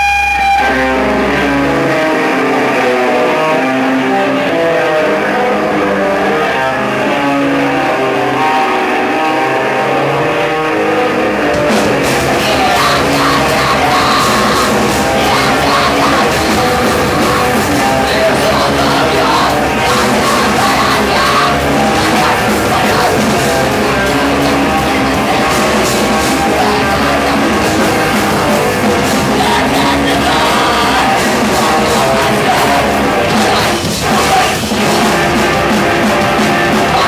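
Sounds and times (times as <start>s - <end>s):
electric guitar and bass chords: 0.0s - 37.0s
drums with crashing cymbals: 11.5s - 37.0s.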